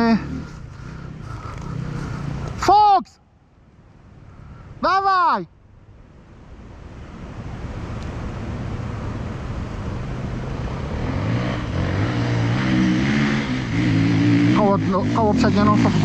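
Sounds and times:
motorcycle engine climbing hill: 0:00.0 - 0:02.7, 0:08.1 - 0:16.0.

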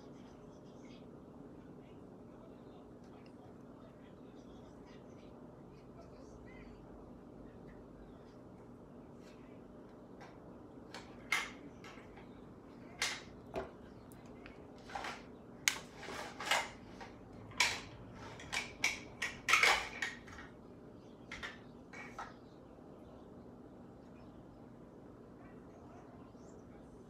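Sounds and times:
makeup tools clicking and clattering: 0:13.0 - 0:20.6.

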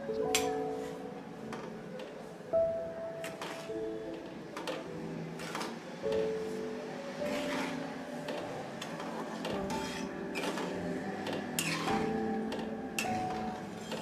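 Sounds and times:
instrumental background music: 0:00.0 - 0:14.0
metal spatula scraping metal pan: 0:07.2 - 0:08.0, 0:09.2 - 0:10.8, 0:11.4 - 0:14.0.

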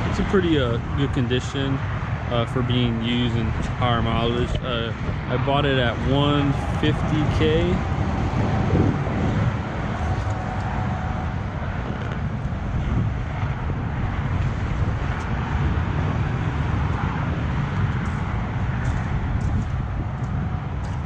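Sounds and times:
freeway traffic rushing: 0:00.0 - 0:21.0.

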